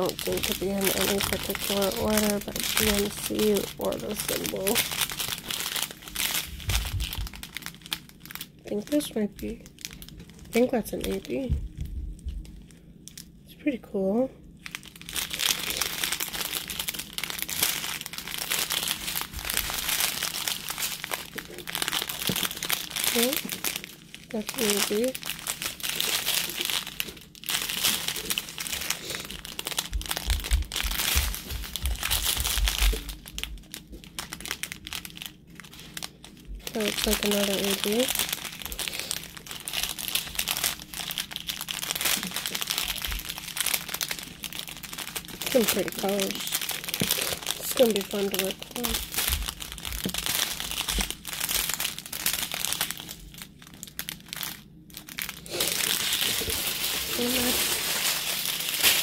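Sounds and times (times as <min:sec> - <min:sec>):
plastic bags crinkling: 0:00.0 - 0:13.4, 0:14.6 - 0:59.0
dull low thumps: 0:06.4 - 0:07.4, 0:11.5 - 0:12.6, 0:29.5 - 0:33.1.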